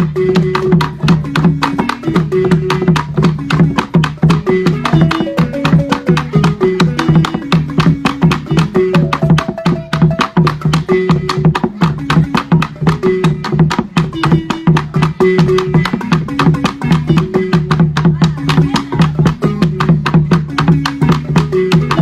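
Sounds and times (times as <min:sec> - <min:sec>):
barrel drum played: 0:00.0 - 0:22.0
wooden xylophone played fast: 0:00.0 - 0:22.0.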